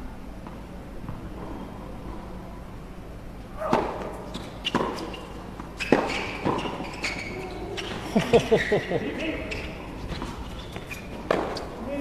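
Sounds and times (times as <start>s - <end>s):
racket hitting tennis ball: 3.6s - 8.0s, 11.2s - 11.7s.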